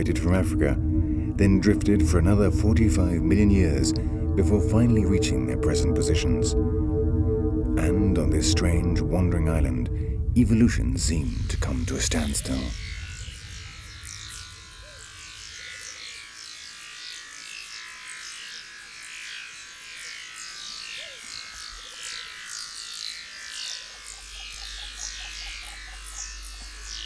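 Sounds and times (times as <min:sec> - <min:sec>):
low steady hum: 0:00.0 - 0:16.4
high chirps sliding downward: 0:00.0 - 0:17.0, 0:20.4 - 0:27.0.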